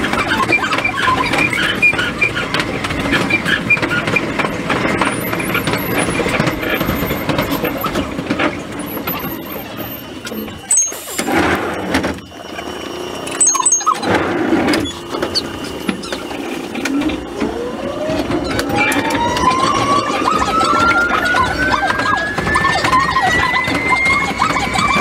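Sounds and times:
electric railcar running on track: 0:00.0 - 0:25.0
high wheel squeal: 0:00.0 - 0:25.0
steady high tone: 0:08.8 - 0:25.0.

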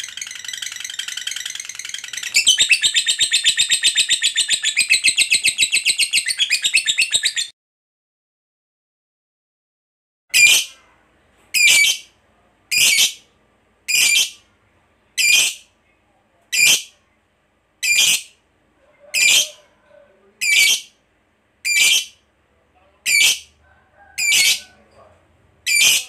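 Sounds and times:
lovebird high-pitched calls: 0:00.0 - 0:07.5, 0:10.3 - 0:10.8, 0:11.6 - 0:12.1, 0:12.7 - 0:13.2, 0:13.9 - 0:14.4, 0:15.2 - 0:15.6, 0:16.6 - 0:16.9, 0:17.8 - 0:18.4, 0:19.1 - 0:19.6, 0:20.4 - 0:21.0, 0:21.6 - 0:22.2, 0:23.1 - 0:23.5, 0:24.2 - 0:24.6, 0:25.6 - 0:26.0.

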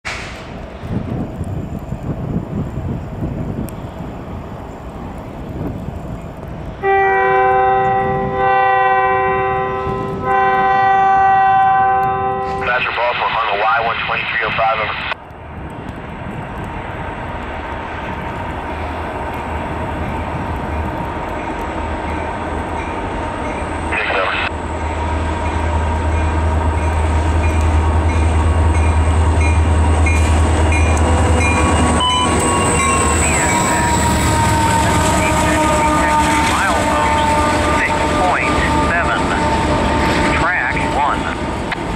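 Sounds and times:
low rumble of train: 0:00.0 - 0:41.9
wind: 0:00.0 - 0:41.9
diesel locomotive engine drone: 0:00.1 - 0:41.9
train air horn chord: 0:06.8 - 0:12.7, 0:34.5 - 0:40.0.

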